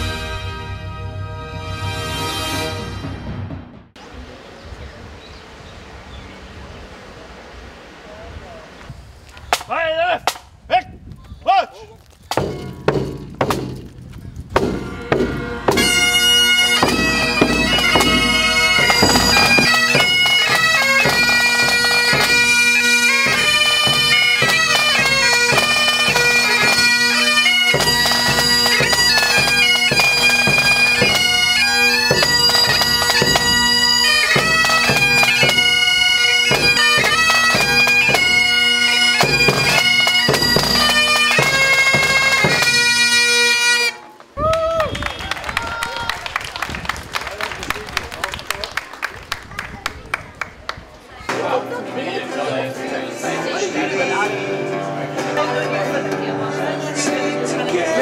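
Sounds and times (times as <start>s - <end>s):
bagpipes playing a tune: 0.0s - 3.1s, 14.7s - 44.2s
bass drum beating: 12.3s - 20.2s.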